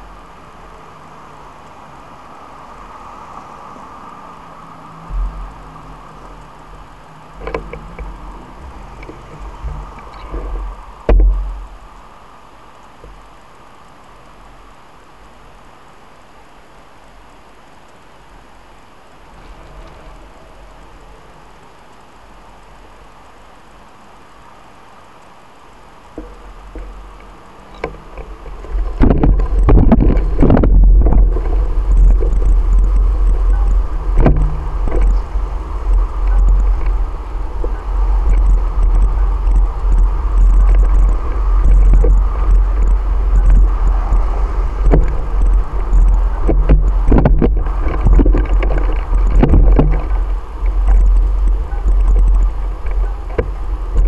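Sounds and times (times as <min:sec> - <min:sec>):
wind buffeting microphone: 0:04.6 - 0:11.9, 0:26.1 - 0:54.0
knocks and rattles: 0:07.4 - 0:11.6, 0:27.8 - 0:54.0.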